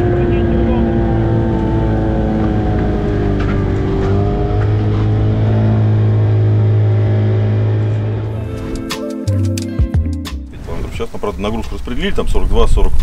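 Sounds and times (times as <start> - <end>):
outboard motor droning: 0.0 - 8.8.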